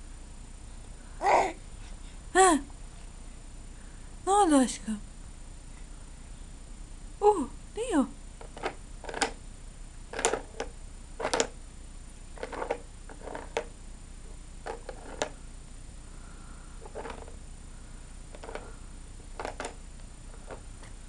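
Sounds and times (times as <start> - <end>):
baby grunts and mouth noises: 1.2 - 1.6.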